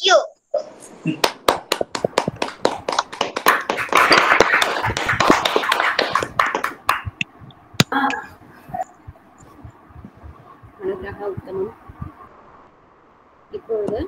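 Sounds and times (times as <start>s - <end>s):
people clapping over video call: 1.1s - 7.9s.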